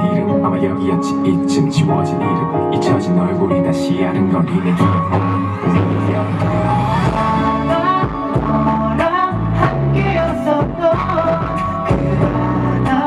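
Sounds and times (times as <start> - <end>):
band backing track: 0.0 - 13.0
man singing pop song live: 2.8 - 13.0.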